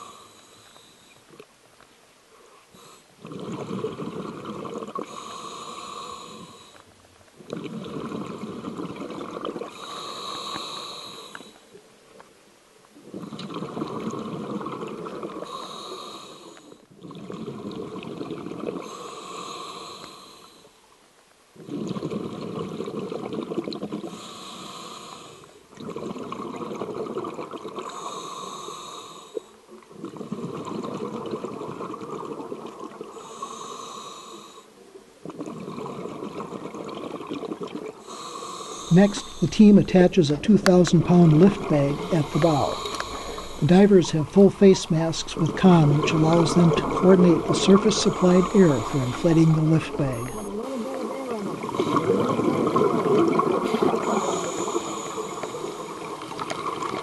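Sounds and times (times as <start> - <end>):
regulator inhale hiss: 0.0 - 1.2, 5.0 - 6.8, 9.7 - 11.8, 15.4 - 16.8, 18.8 - 20.8, 24.1 - 25.6, 27.9 - 29.6, 33.1 - 34.8, 38.0 - 39.8, 41.6 - 44.2, 53.6 - 56.3
exhaled bubbles gurgling: 2.8 - 5.8, 6.4 - 11.8, 13.0 - 20.2, 21.6 - 25.0, 25.7 - 28.6, 29.7 - 34.1, 35.2 - 57.0.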